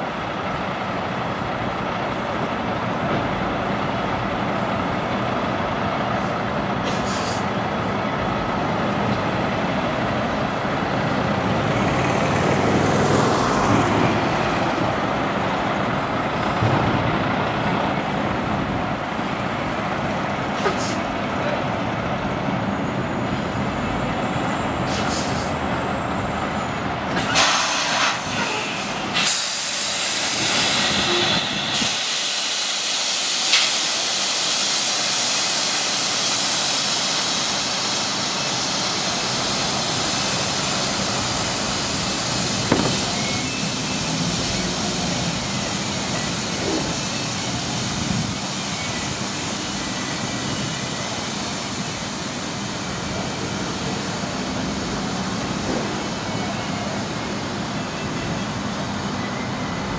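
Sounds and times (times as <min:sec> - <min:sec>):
diesel truck engine rumble: 0:00.0 - 0:59.9
air brake hiss: 0:06.8 - 0:07.5, 0:20.6 - 0:21.0, 0:24.8 - 0:25.6, 0:27.2 - 0:44.5.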